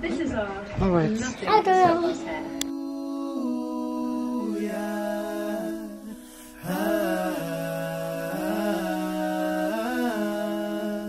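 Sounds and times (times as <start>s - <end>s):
person singing long notes: 2.5s - 11.0s.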